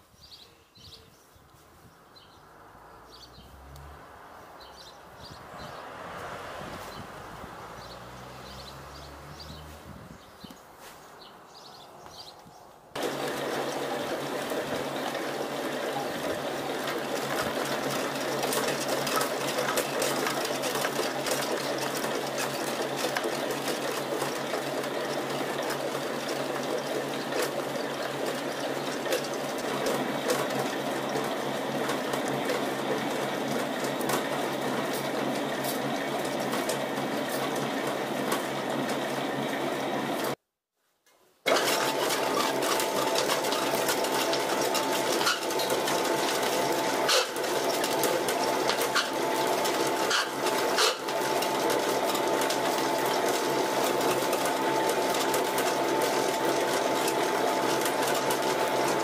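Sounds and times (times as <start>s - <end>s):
pellet mill humming and clattering: 13.0s - 40.4s, 41.5s - 59.0s.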